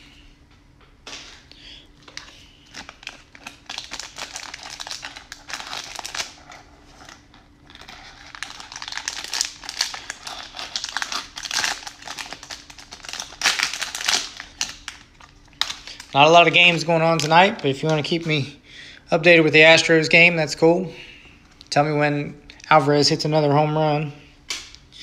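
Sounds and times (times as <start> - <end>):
plastic wrapper crinkling: 2.0 - 18.3.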